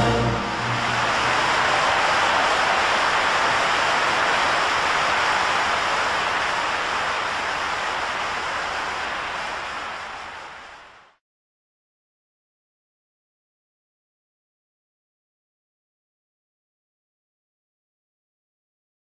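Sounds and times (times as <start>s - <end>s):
stadium crowd applauding: 0.0s - 11.2s.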